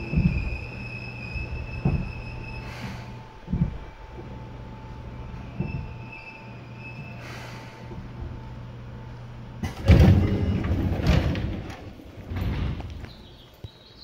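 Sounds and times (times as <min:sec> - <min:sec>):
sliding train doors opening: 0:00.0 - 0:13.4
train electrical hum: 0:00.0 - 0:14.0
air hiss: 0:07.2 - 0:07.9.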